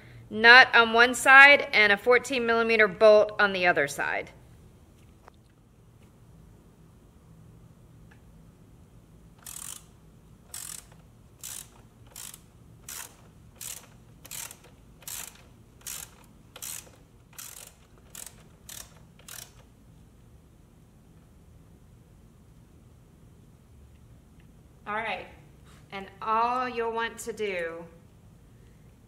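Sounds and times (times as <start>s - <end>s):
socket ratchet clicking: 9.4s - 19.7s.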